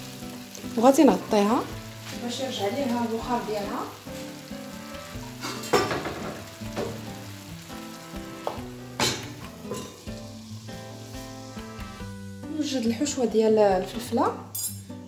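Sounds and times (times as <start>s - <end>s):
sauce sizzling in a frying pan: 0.0s - 15.0s
metal lid clattering on pan: 5.3s - 7.0s, 9.0s - 10.0s.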